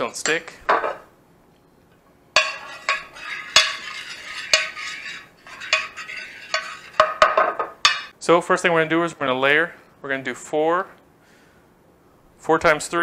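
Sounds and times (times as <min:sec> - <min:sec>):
metal cup scraping glass dish: 0:02.4 - 0:08.1.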